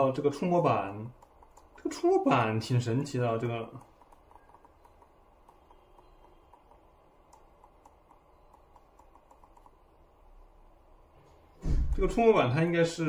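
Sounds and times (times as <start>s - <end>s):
fingertips tapping touchpad: 0.8s - 10.2s.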